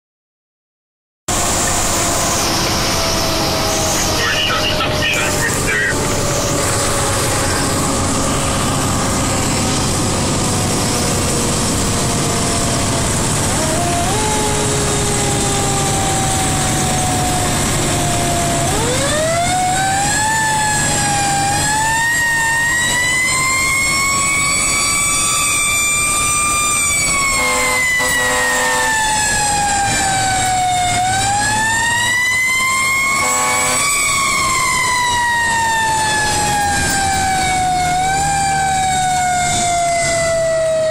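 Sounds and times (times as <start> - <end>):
fire engine siren wailing: 1.3 - 40.9
truck engine running: 1.3 - 40.9
short pulsing siren tone: 27.1 - 30.9, 33.1 - 34.4.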